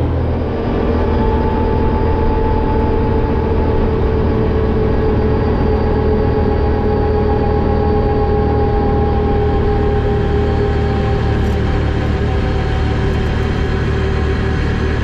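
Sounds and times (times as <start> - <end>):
engine whine: 0.0 - 15.0
quad bike engine running: 0.0 - 15.0.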